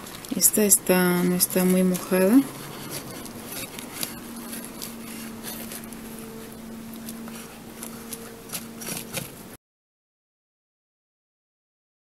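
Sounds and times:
fingers scraping potting soil: 0.0s - 9.6s
steady low hum: 0.0s - 9.6s.

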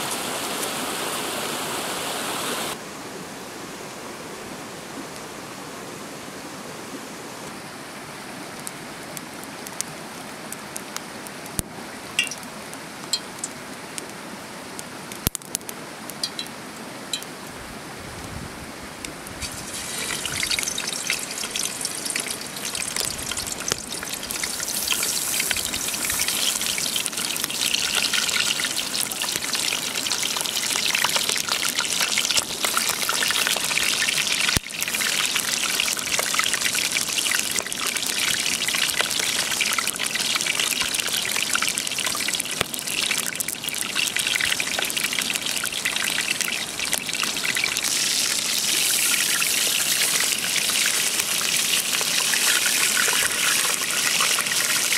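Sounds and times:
chicken sizzling in hot oil: 19.4s - 54.9s.

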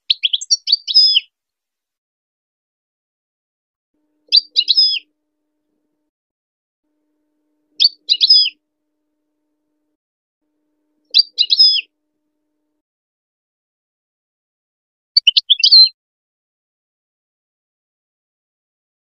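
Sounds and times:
goldfinch chirping: 0.0s - 1.3s, 4.2s - 5.1s, 7.8s - 8.6s, 11.1s - 11.9s, 15.2s - 15.9s.

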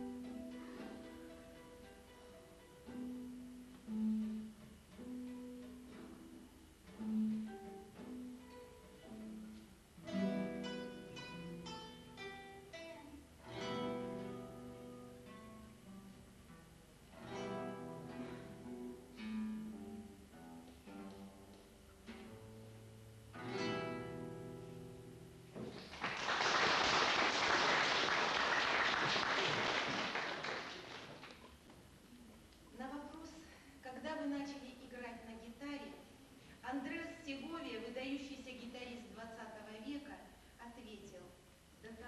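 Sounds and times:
classical guitars playing chords: 0.0s - 42.0s
audience applause: 25.7s - 31.5s.

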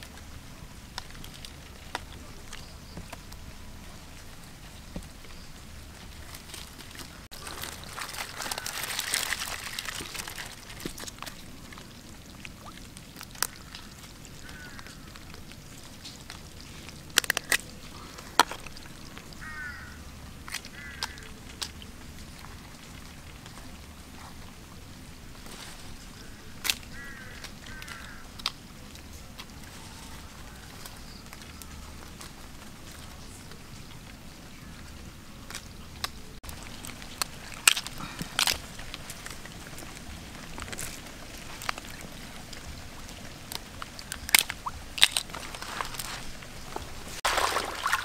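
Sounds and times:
crabs scraping in wicker basket: 5.8s - 12.2s, 35.6s - 48.0s
crab shells clicking and snapping: 6.2s - 23.7s, 26.0s - 34.1s, 35.4s - 47.3s.

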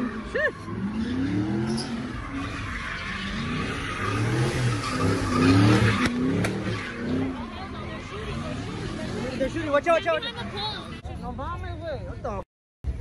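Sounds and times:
car engine revving: 0.0s - 11.0s
tyres screeching on asphalt: 0.0s - 11.4s.

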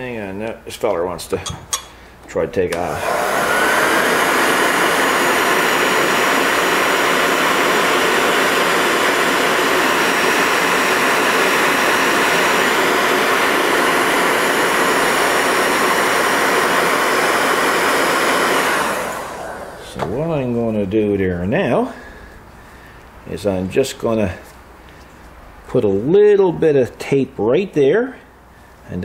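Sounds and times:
heat gun whirring: 1.7s - 20.4s.

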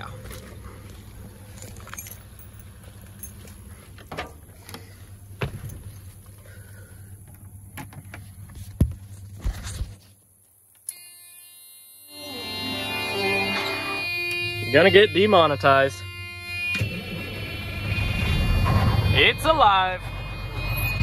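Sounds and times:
footsteps climbing truck steps: 2.7s - 6.4s
ignition tone: 10.9s - 21.0s.

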